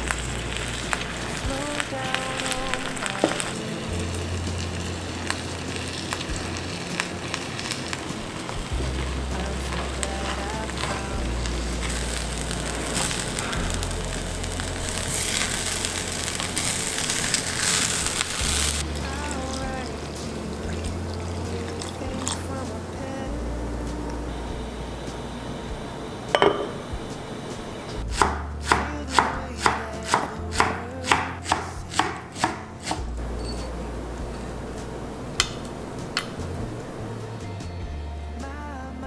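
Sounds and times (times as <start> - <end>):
rice sizzling in a pot: 0.0 - 22.5
background music with bass line: 0.0 - 39.0.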